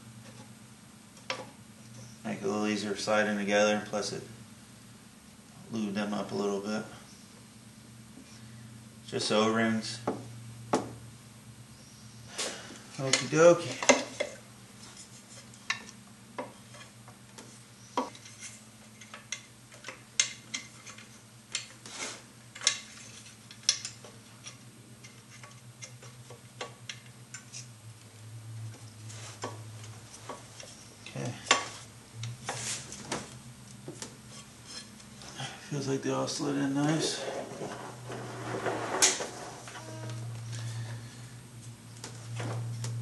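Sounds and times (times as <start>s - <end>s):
low steady hum: 0.0s - 43.0s.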